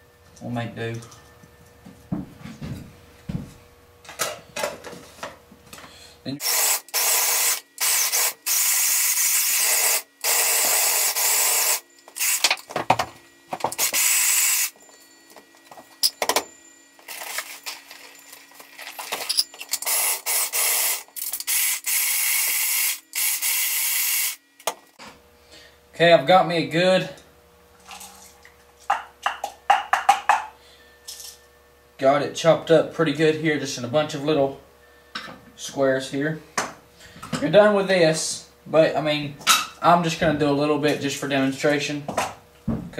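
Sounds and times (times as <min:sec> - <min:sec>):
food chopper grinding kibble: 0:06.4 - 0:12.7, 0:13.6 - 0:14.8, 0:17.0 - 0:24.4.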